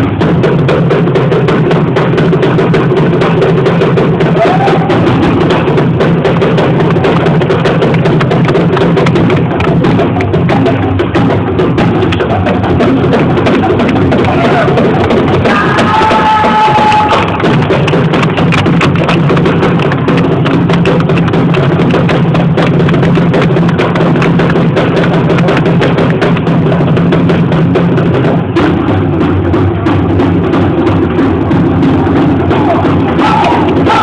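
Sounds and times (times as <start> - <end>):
heavy drumming: 0.0 - 34.0
held high note: 15.4 - 17.5.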